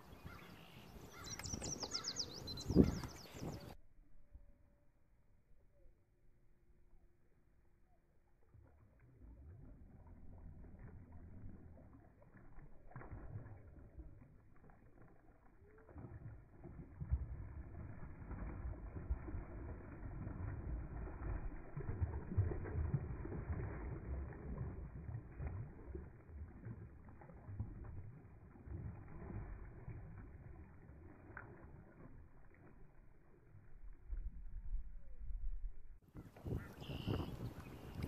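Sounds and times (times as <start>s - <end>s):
fish splashing and thrashing in water: 8.3s - 34.4s.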